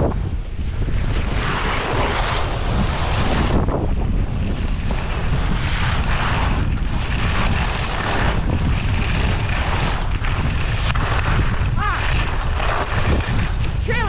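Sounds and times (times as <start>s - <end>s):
wind buffeting microphone: 0.0s - 14.0s
ski edges scraping packed snow: 1.1s - 14.0s.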